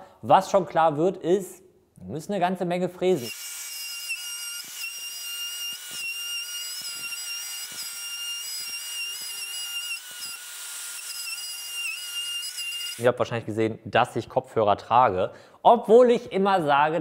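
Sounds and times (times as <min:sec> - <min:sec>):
router high-pitched whine: 0:03.2 - 0:13.0.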